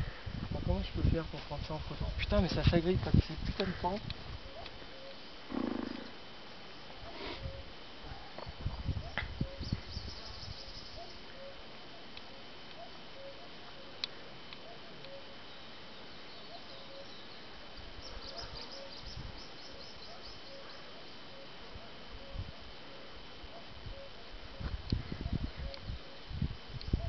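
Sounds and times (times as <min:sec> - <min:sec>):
wind rumble on microphone: 0:00.0 - 0:04.9, 0:07.4 - 0:11.1, 0:17.8 - 0:19.6, 0:23.5 - 0:27.0
faint high whine: 0:00.0 - 0:27.0
birds twittering: 0:07.1 - 0:21.6.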